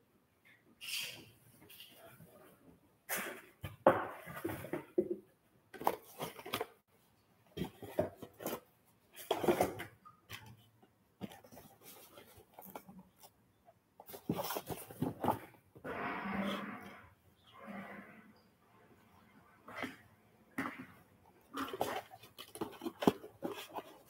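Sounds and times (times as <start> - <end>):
cardboard and paper packaging rustling: 3.8 - 6.9, 7.6 - 13.4, 14.0 - 15.8, 21.4 - 24.0.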